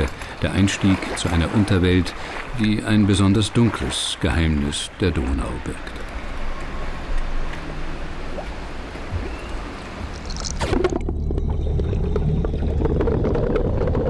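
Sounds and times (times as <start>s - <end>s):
bubbles clicking and gurgling: 0.0s - 3.5s, 9.2s - 14.0s
water sloshing: 0.0s - 14.0s
muffled underwater rumble: 8.3s - 14.0s.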